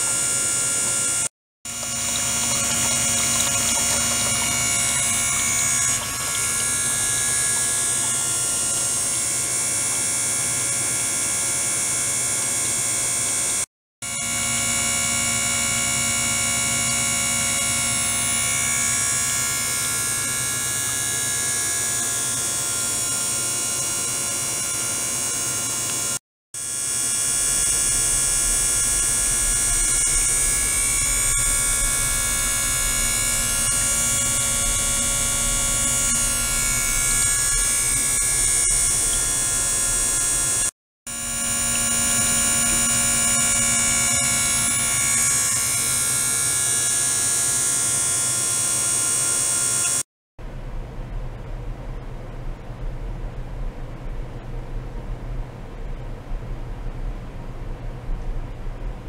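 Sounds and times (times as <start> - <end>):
deeper hum: 0.0 - 9.5, 26.8 - 40.7
pump buzzing hum: 0.0 - 50.1.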